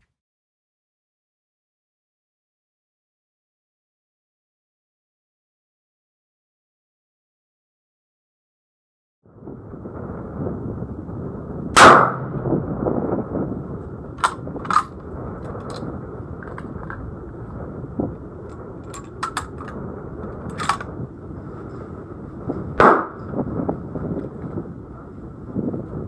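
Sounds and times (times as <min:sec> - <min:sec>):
loud rifle shot: 0:11.7 - 0:12.4, 0:22.8 - 0:23.2
shot echo: 0:11.8 - 0:12.4, 0:22.8 - 0:23.3.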